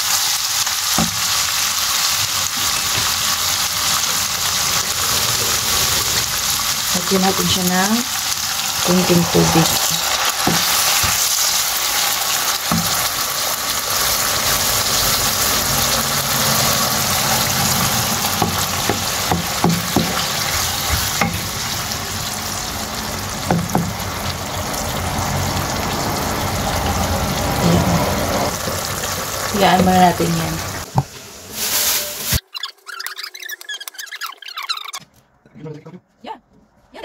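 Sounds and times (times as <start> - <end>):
meat sizzling in a wok: 0.0 - 32.4
wooden spoon knocking pan: 12.7 - 13.1, 18.4 - 21.6, 23.5 - 24.0.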